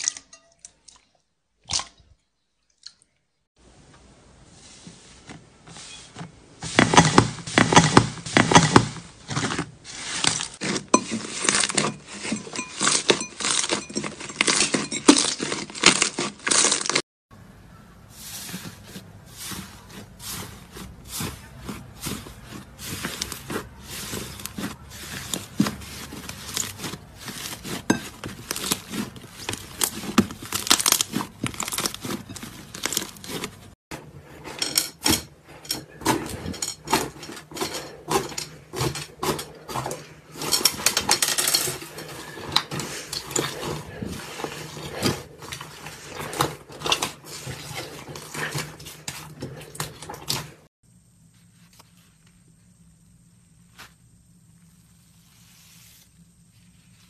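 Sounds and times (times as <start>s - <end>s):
slime crust crackling: 18.3s - 33.7s.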